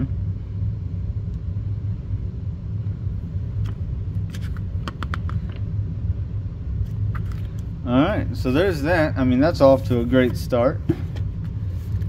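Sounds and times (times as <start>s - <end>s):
room heater rumbling: 0.0s - 12.0s
glossy booklet pages rustling: 4.3s - 4.7s, 11.6s - 12.0s.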